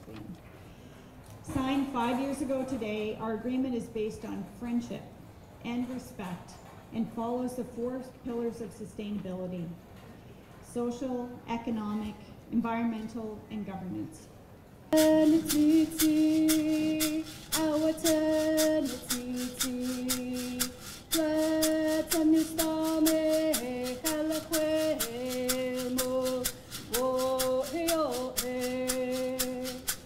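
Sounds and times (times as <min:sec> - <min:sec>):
struck percussion beat: 0:15.0 - 0:30.0
woman singing long held notes: 0:15.0 - 0:30.0.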